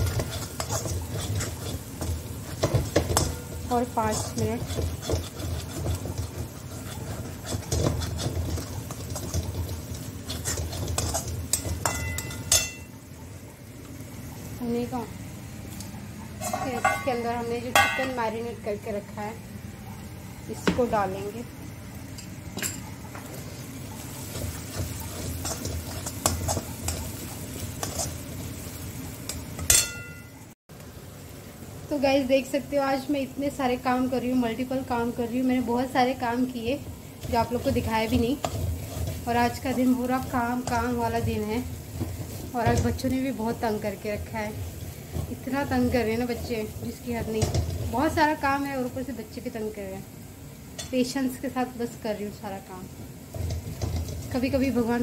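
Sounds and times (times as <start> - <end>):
metal spatula scraping pan: 0.0 - 12.9, 16.4 - 17.2, 24.0 - 28.4, 37.2 - 43.1
low sizzle: 0.0 - 55.0
sharp metallic clink: 29.7 - 30.4.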